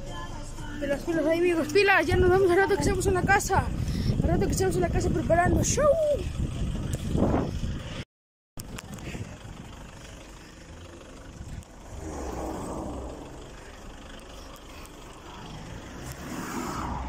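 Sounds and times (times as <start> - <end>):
traffic rumble: 0.0 - 8.0, 8.6 - 17.0
vehicle passing by: 10.0 - 17.0.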